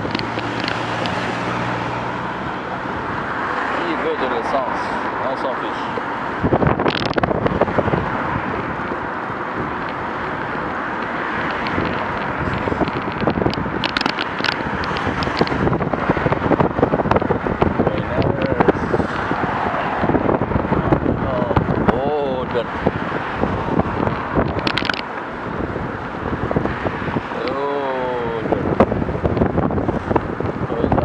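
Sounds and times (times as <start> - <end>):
road and traffic noise: 0.0 - 31.0
wind buffeting microphone: 0.0 - 31.0.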